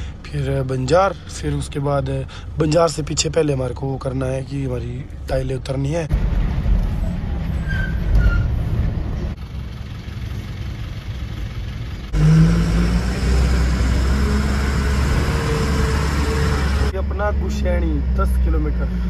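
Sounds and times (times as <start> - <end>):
road noise: 0.0 - 19.0
truck engine running: 8.5 - 19.0.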